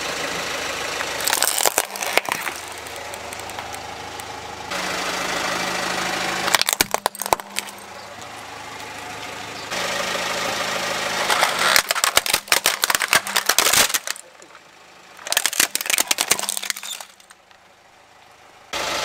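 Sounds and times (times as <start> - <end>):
car engine running: 0.0 - 19.0
plastic toys cracking and snapping: 1.0 - 3.8, 6.5 - 7.8, 11.2 - 14.5, 15.2 - 17.5.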